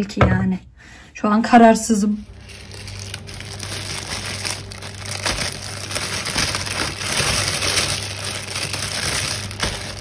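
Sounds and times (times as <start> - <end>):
plastic bag crinkling: 2.2 - 10.0.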